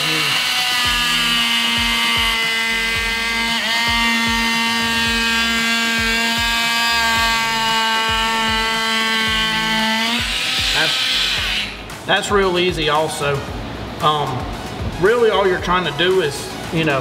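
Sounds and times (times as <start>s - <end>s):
oscillating sander whining: 0.0s - 12.0s.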